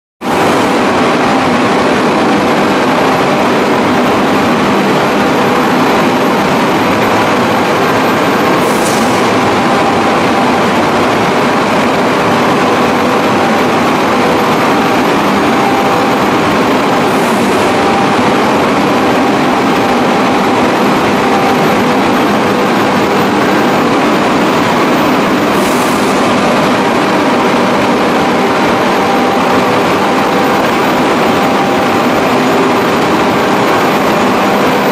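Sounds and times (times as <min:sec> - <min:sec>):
high whine rising in pitch: 0:00.2 - 0:34.9
loud steady machine noise: 0:00.2 - 0:34.9.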